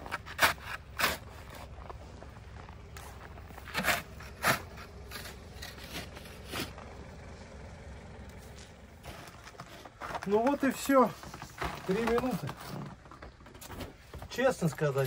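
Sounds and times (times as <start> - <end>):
snow shovel scraping snow: 0.0 - 2.4, 3.0 - 6.9, 8.5 - 12.9.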